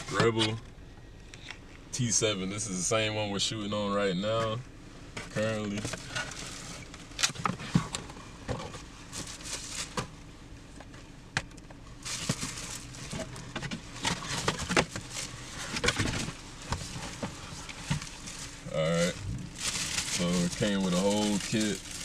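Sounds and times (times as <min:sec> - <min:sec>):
plastic packaging crinkling: 0:09.1 - 0:10.0, 0:12.0 - 0:18.8, 0:19.5 - 0:22.0.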